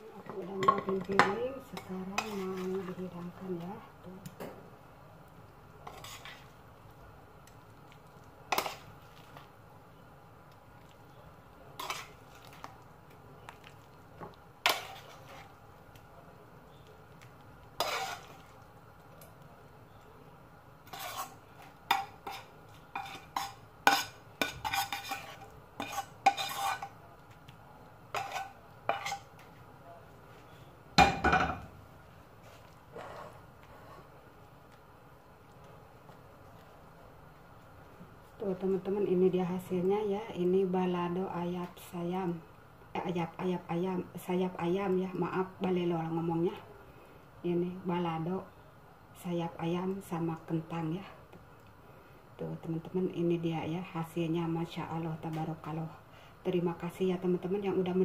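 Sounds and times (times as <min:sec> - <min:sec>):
metal spoon scraping a frying pan: 0:00.6 - 0:03.0, 0:05.8 - 0:06.5, 0:08.5 - 0:08.9, 0:11.8 - 0:12.2, 0:14.6 - 0:15.5, 0:17.8 - 0:18.5, 0:20.8 - 0:27.0, 0:28.1 - 0:29.4.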